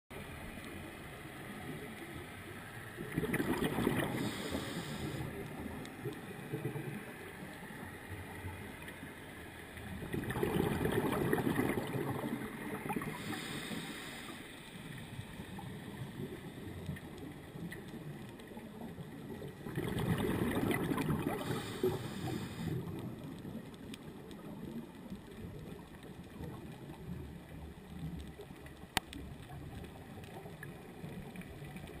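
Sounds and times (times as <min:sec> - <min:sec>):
low underwater rush: 0:00.1 - 0:32.0
exhaled bubbles rushing: 0:03.0 - 0:07.2, 0:09.8 - 0:14.1, 0:15.2 - 0:23.6
regulator hiss: 0:04.1 - 0:05.4, 0:13.0 - 0:15.2, 0:21.4 - 0:22.8.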